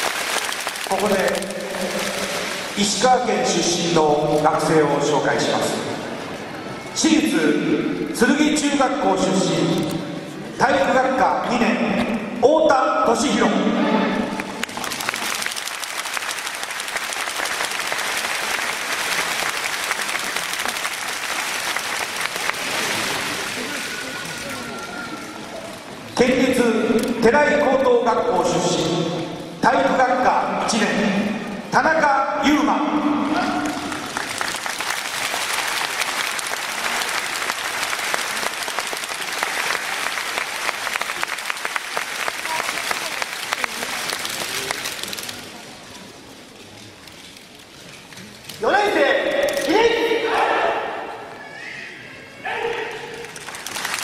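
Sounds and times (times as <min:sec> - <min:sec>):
audience applauding: 0:00.0 - 0:03.3, 0:14.3 - 0:25.4, 0:33.4 - 0:45.6, 0:53.1 - 0:54.0.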